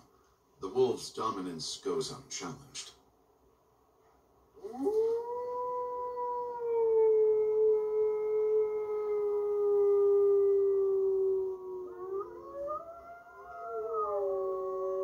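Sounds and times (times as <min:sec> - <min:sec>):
higher wolf howl: 0:04.6 - 0:15.0
wolf howling long and sliding: 0:04.6 - 0:15.0.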